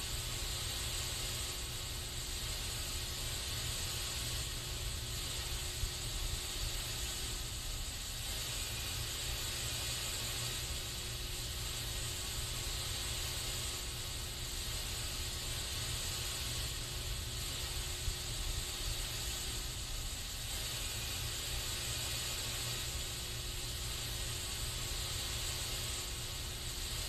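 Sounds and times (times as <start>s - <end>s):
aerosol spray can hissing: 0.0s - 27.0s.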